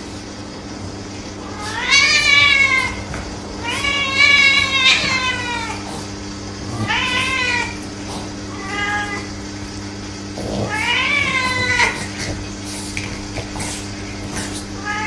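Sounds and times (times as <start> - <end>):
cat yowling: 1.4 - 5.9, 6.7 - 7.8, 8.5 - 9.3, 10.6 - 12.2, 14.8 - 15.0.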